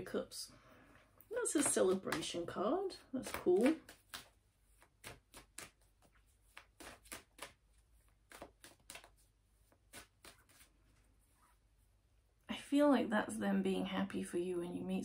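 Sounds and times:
cards clicking and flicking: 3.2 - 10.7.

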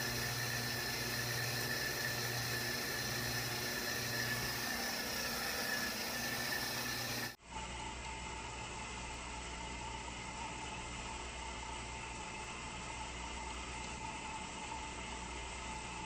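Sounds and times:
thin high whine: 0.0 - 7.4
low electrical hum: 0.0 - 16.0.

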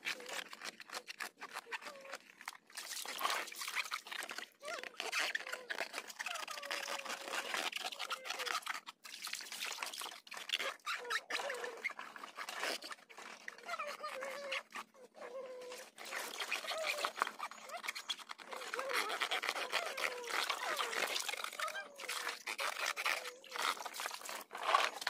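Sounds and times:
water splashing and dribbling: 0.0 - 25.0.

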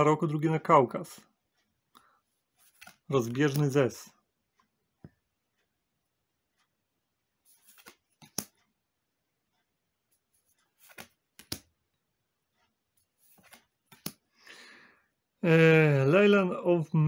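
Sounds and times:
trading cards sliding: 2.6 - 3.8, 7.4 - 8.5, 10.3 - 11.7, 13.1 - 14.2.

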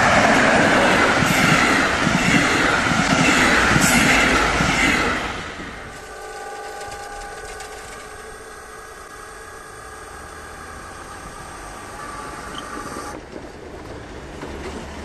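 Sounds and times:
electric barrier motor whining: 4.8 - 13.2.

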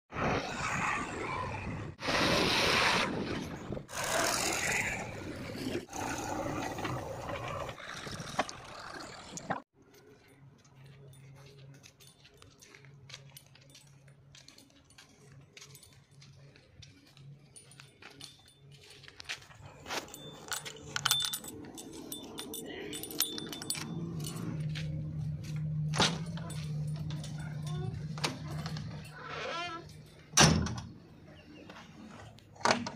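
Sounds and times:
keys jangling: 17.3 - 30.3
diesel engines running: 19.0 - 29.1.

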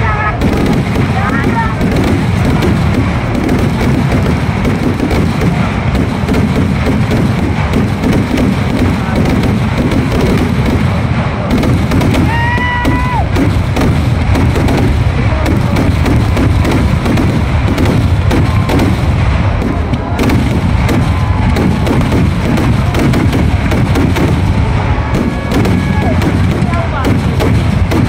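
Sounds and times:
fireworks bangs and crackle: 0.0 - 28.0
firework whistle: 24.6 - 26.4.

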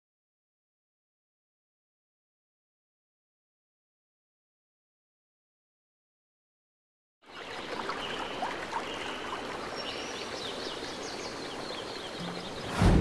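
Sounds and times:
small birds chirping: 7.3 - 12.9.

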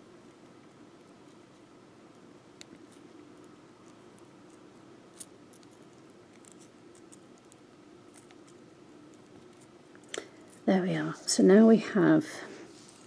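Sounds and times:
low steady hum: 0.0 - 13.0
wire twisting clicks and scratches: 0.3 - 10.7.

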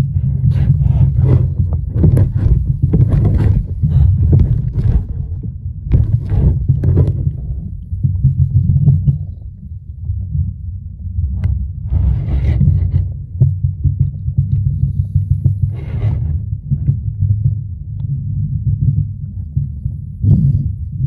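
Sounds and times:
crackling and knocks: 0.0 - 9.5
stream flowing heard underwater: 0.0 - 21.0.

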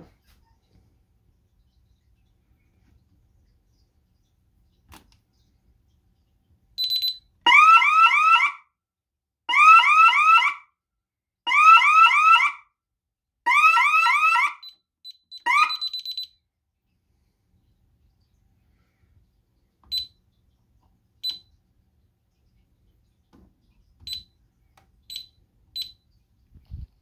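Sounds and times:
keypad beeps: 6.8 - 7.2, 15.0 - 16.4, 19.9 - 20.1, 21.2 - 21.4, 24.0 - 24.3, 25.1 - 26.0
alarm siren sweeping tone: 7.5 - 8.6, 9.5 - 10.7, 11.5 - 12.7, 13.5 - 16.3.

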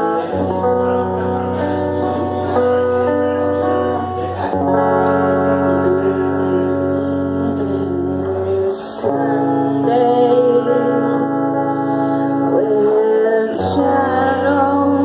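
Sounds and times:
electric guitar chords: 0.0 - 15.0
woman singing: 5.4 - 15.0.

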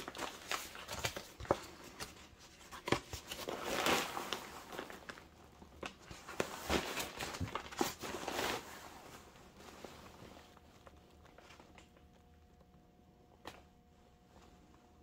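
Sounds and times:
paper leaflet rustling: 0.0 - 8.8.

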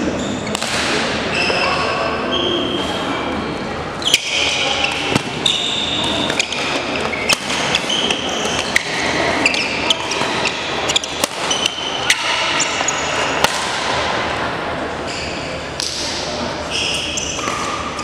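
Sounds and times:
racquets striking shuttlecock: 0.5 - 1.1, 6.2 - 9.1, 10.0 - 14.1
shoes squeaking on floor: 1.3 - 3.4, 4.0 - 13.4, 15.1 - 15.6, 16.7 - 18.0.

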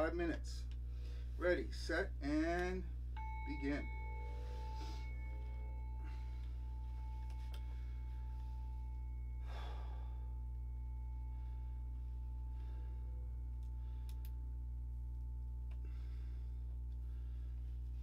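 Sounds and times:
low electrical hum: 0.0 - 18.0
faint high tone: 3.2 - 11.7
breathy exhale: 9.4 - 10.4
faint clicks: 13.6 - 14.4.

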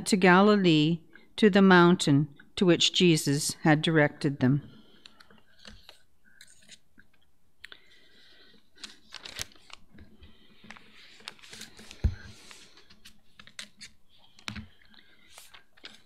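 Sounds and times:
paper pages rustling: 5.0 - 6.8, 8.4 - 16.0.

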